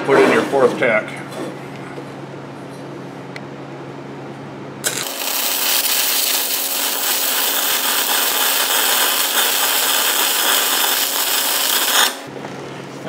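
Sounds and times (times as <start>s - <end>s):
arc welding crackling hiss: 4.8s - 12.3s.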